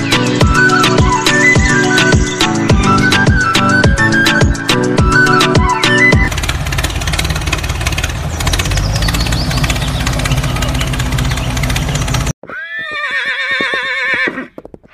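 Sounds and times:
tractor engine knocking: 6.2s - 12.4s
horse whinnying: 12.4s - 14.9s.

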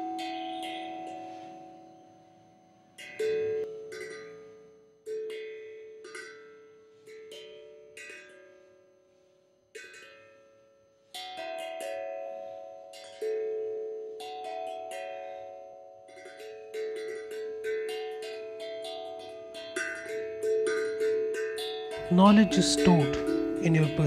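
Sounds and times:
plucked string instrument notes: 21.9s - 24.0s.

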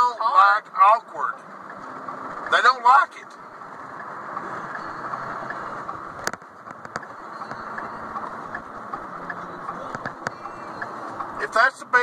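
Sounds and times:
sharp clicks: 4.0s - 11.4s.

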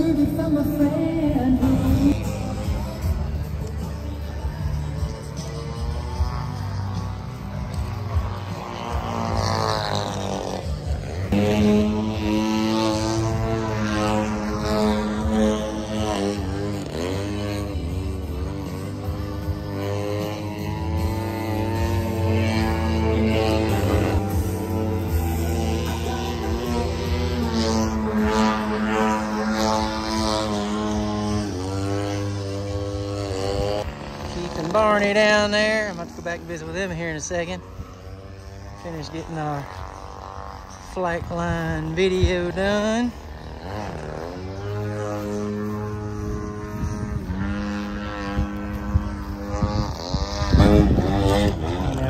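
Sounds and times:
model airplane engine and propeller: 0.0s - 52.0s.

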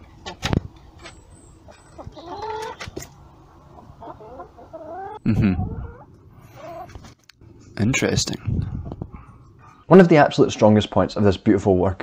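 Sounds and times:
hens clucking: 0.1s - 7.1s.

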